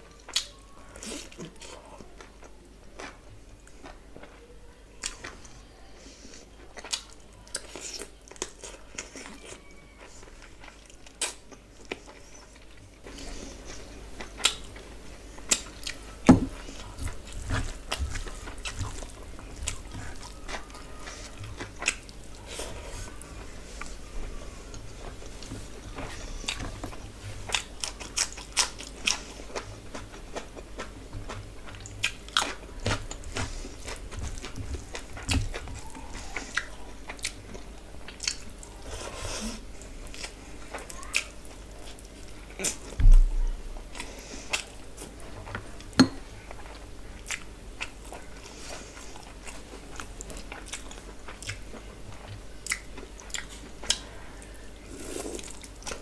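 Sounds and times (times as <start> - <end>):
wet chewing and mouth smacks: 6.7 - 16.0, 16.6 - 22.4, 24.7 - 38.8, 43.9 - 45.8, 46.5 - 54.1
low thump: 43.0 - 43.6.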